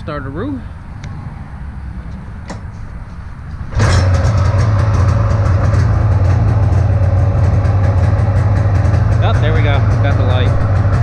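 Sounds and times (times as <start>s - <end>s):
snowmobile engine starting and idling: 3.7s - 11.0s.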